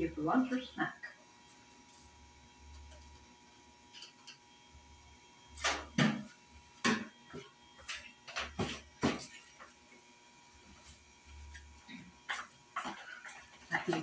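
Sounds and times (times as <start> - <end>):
kitchen knocks and clicks: 5.6 - 9.4.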